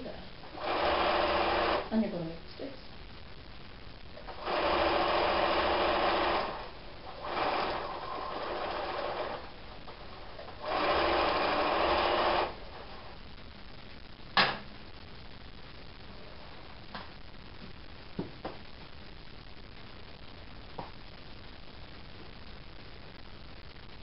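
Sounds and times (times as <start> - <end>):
sewing machine stitching: 0.6 - 1.9, 4.3 - 9.5, 10.6 - 12.6.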